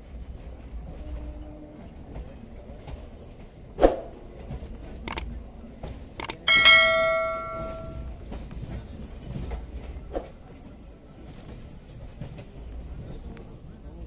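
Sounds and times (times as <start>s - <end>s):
train passing with low rumble: 0.0s - 14.0s
sharp clicks: 6.2s - 6.6s
loud metallic clang: 6.2s - 8.1s.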